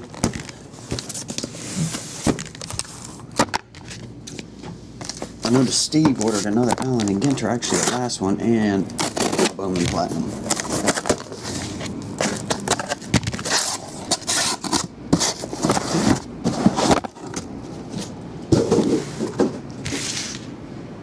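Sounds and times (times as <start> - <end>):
cardboard boxes scraping and sliding: 10.4 - 20.5.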